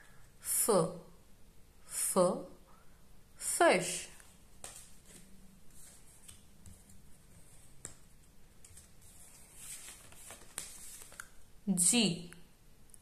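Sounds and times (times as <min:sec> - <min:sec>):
light clicks and taps of cards: 0:07.8 - 0:08.8.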